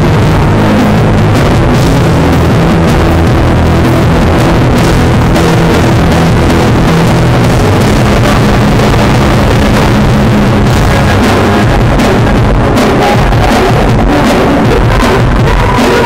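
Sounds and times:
distorted live band music: 0:00.0 - 0:16.0.

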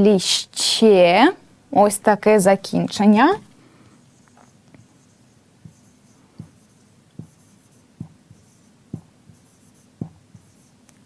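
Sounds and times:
marker scratching: 0:04.1 - 0:11.0
marker knocking on whiteboard: 0:05.6 - 0:10.7.

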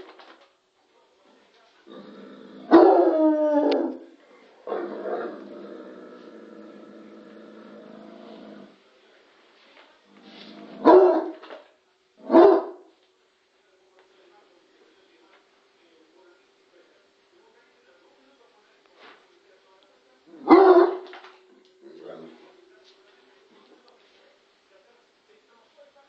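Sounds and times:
dog howling: 0:02.6 - 0:04.0
dog barking: 0:02.7 - 0:03.2, 0:10.8 - 0:11.4, 0:12.2 - 0:12.9, 0:20.4 - 0:21.1.

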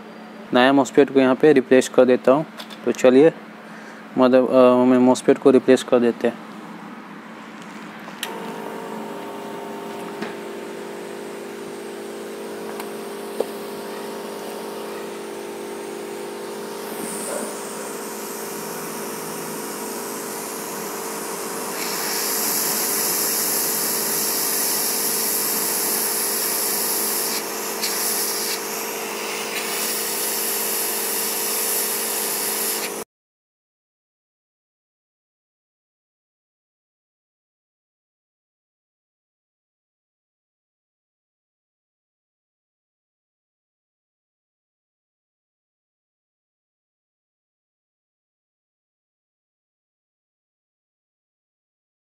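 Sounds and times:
hot-air gun fan hum and hiss: 0:00.0 - 0:33.0.

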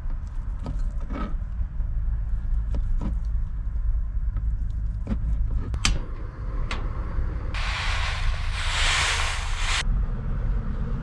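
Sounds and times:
low rumble: 0:07.3 - 0:10.1.

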